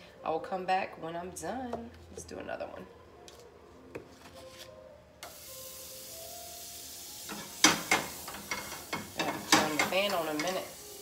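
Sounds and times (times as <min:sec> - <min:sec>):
butter sizzling in a frying pan: 0:05.2 - 0:11.0
pan clattering on burner grate: 0:07.3 - 0:10.7.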